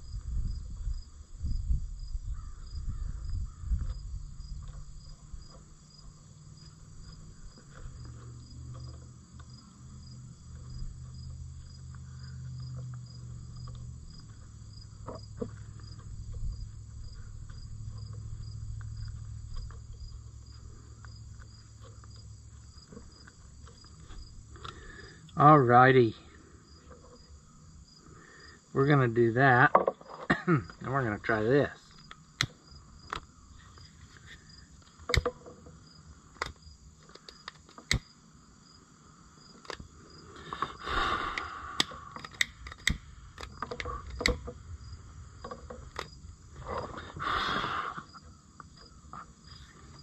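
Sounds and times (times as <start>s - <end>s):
crickets chirping: 0.0s - 50.0s
low steady hum: 3.4s - 50.0s
handling knocks and clunks: 29.5s - 30.8s, 35.0s - 35.8s, 42.2s - 44.6s, 45.4s - 47.0s.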